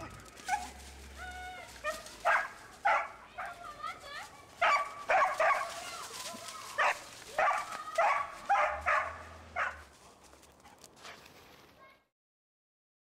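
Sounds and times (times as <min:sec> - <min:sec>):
dog barking: 0:00.0 - 0:00.8, 0:01.8 - 0:03.6, 0:04.6 - 0:05.9, 0:06.7 - 0:09.9.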